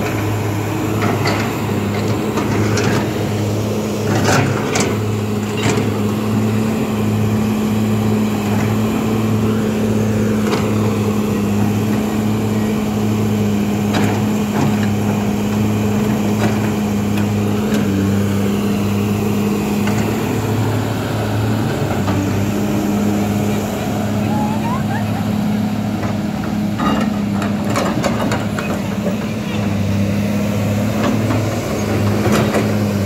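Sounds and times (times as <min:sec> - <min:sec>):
excavator diesel engine running: 0:00.0 - 0:33.0.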